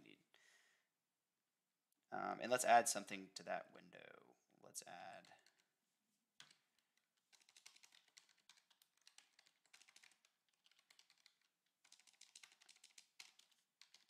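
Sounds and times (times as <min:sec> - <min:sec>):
typing on keyboard: 0:05.2 - 0:05.7, 0:06.4 - 0:14.0.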